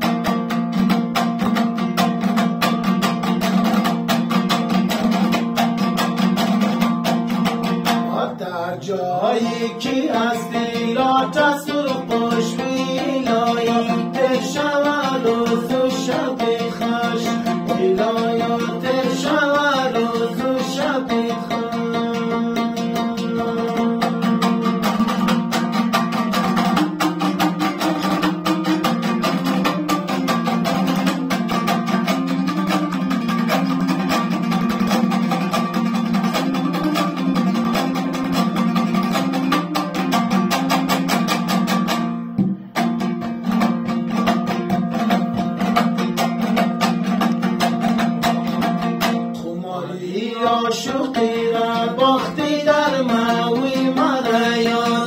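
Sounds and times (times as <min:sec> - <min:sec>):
two-string lute strummed fast: 0:00.0 - 0:08.5, 0:09.2 - 0:49.6, 0:50.4 - 0:55.0
men singing: 0:08.0 - 0:25.1, 0:49.4 - 0:55.0.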